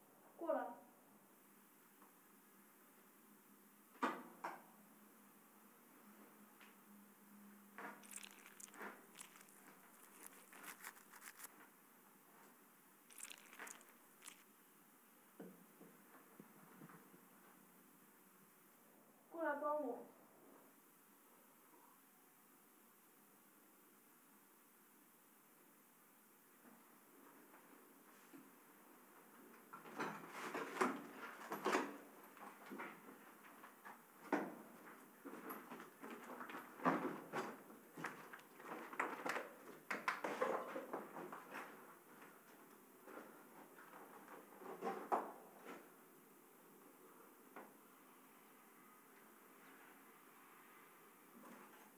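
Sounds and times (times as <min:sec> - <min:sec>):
knocks and scrapes of handling: 0:07.8 - 0:11.7
clothing rustling and shuffling: 0:08.0 - 0:14.5.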